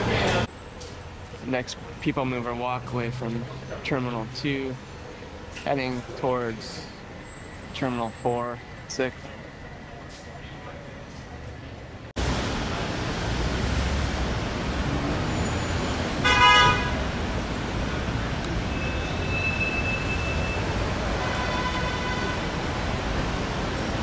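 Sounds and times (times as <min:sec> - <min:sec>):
road traffic noise: 0:00.0 - 0:24.0
short vehicle horn toot: 0:16.2 - 0:17.0, 0:18.8 - 0:22.5.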